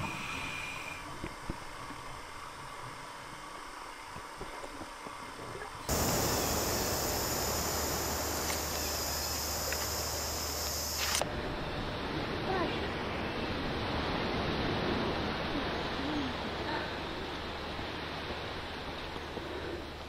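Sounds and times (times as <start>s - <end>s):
hiss: 0.0s - 1.4s, 5.9s - 11.2s
high-pitched insect buzz: 5.9s - 11.2s
low hum: 5.9s - 18.6s.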